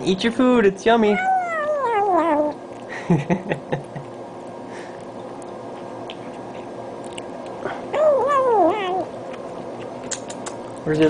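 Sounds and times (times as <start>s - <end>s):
cat chewing: 1.4s - 3.0s, 3.8s - 10.9s.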